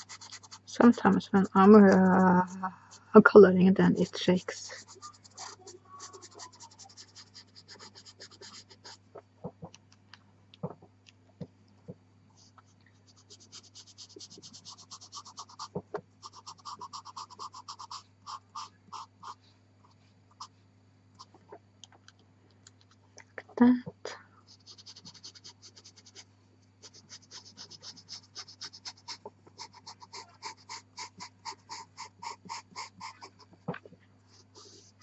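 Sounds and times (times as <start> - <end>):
pencil ticks: 0.0 - 0.7, 13.3 - 19.4, 26.8 - 33.4
pencil scratching on paper: 0.0 - 3.0, 4.4 - 9.0, 13.1 - 19.4, 24.5 - 26.2, 26.8 - 33.5, 34.3 - 35.0
faint low hum: 0.0 - 35.0.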